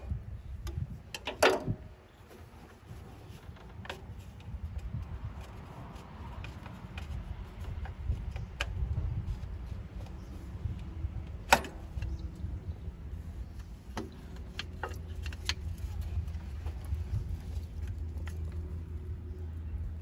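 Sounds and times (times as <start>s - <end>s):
steady low rumble: 0.0s - 20.0s
clicks and knocks of handling fittings: 0.6s - 12.4s, 13.4s - 19.0s.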